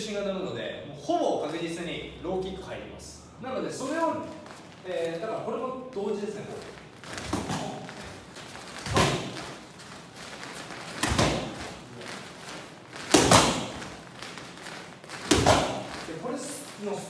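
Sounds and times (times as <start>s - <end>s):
strikes thudding on kick pads: 13.1s - 13.9s, 15.2s - 16.0s.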